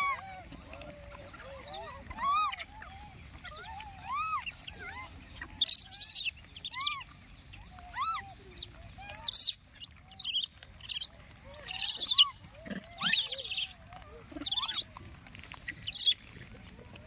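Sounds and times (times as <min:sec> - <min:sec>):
monkey screeches: 0:02.0 - 0:02.9, 0:03.6 - 0:07.1, 0:07.9 - 0:14.9, 0:15.6 - 0:16.2.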